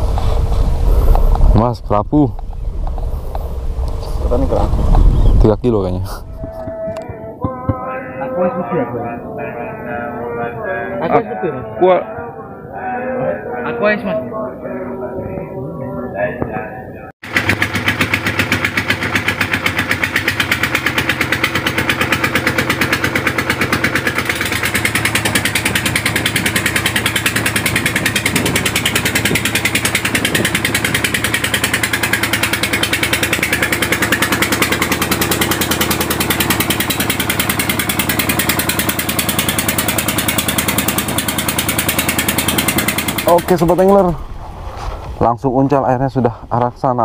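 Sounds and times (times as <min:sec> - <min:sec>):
boat engine chugging: 0:17.2 - 0:44.4.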